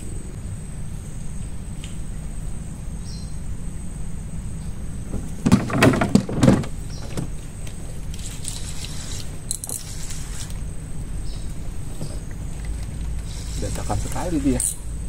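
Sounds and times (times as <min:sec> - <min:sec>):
steady low rumble: 0:00.0 - 0:15.0
knocks and clatter in wooden boat: 0:05.1 - 0:07.4
fishing reel whirring: 0:13.1 - 0:14.8.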